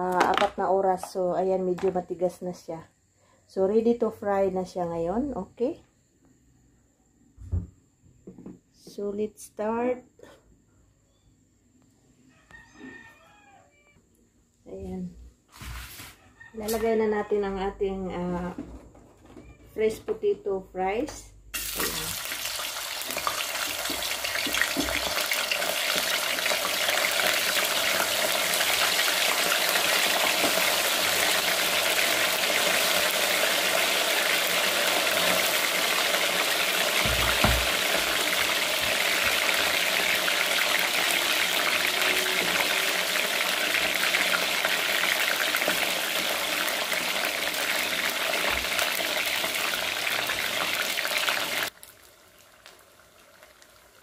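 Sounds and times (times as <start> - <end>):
fries sizzling in hot oil: 21.5 - 54.0
dull knock: 37.0 - 37.8.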